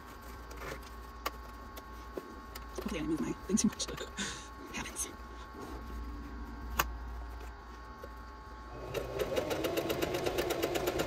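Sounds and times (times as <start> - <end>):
sewing machine stitching: 8.7 - 11.0.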